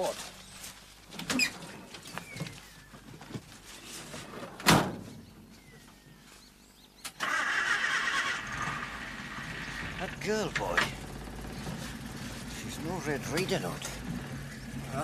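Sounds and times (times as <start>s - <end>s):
van door slamming: 4.6s - 5.1s
van engine starting and running: 7.2s - 15.0s.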